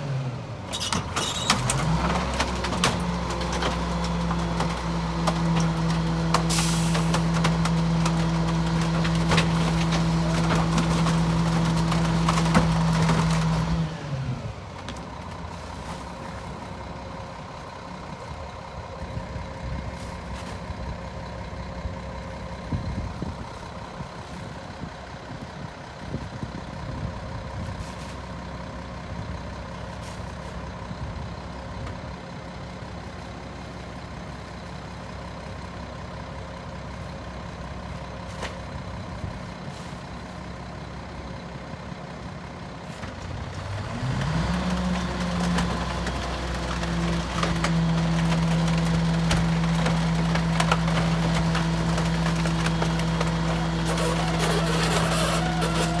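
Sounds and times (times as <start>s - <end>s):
garbage truck diesel engine: 0.0s - 56.0s
hydraulic compactor running: 47.1s - 56.0s.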